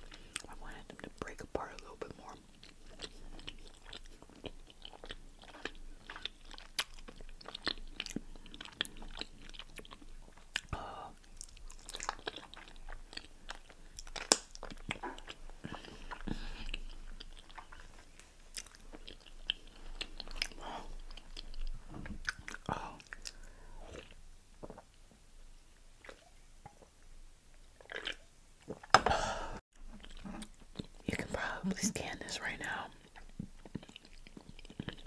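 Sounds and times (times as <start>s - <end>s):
biting and chewing food: 0.0s - 25.0s, 27.8s - 29.0s, 29.8s - 31.3s, 32.6s - 35.0s
wet mouth clicks and smacks: 11.4s - 15.3s.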